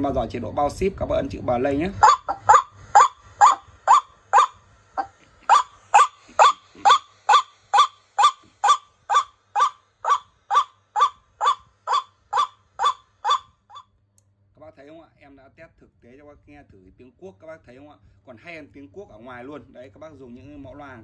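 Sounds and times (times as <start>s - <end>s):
waterhen calls over loudspeaker: 1.9s - 13.8s.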